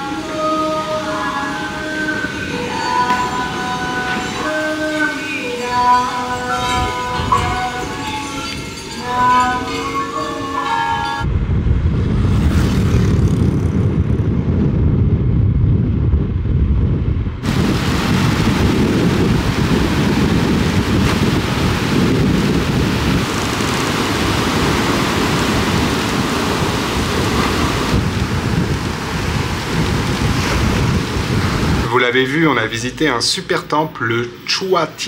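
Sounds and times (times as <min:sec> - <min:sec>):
heavy rain hissing: 0:00.0 - 0:09.2, 0:17.4 - 0:33.5
wind: 0:00.0 - 0:35.0
rumble of thunder: 0:11.3 - 0:31.9.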